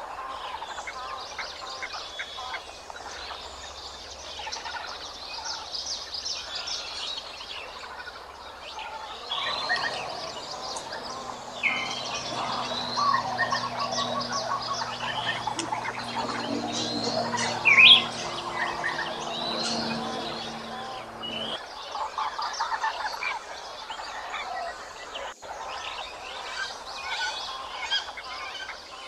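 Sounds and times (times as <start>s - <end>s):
birds chirping: 0.3s - 21.8s
faint low hum: 8.6s - 21.6s.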